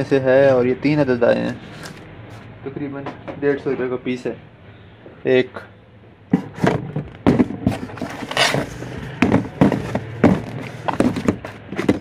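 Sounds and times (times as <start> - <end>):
plastic bottles and tins knocking: 6.3 - 12.0
scraping rustle: 7.6 - 12.0.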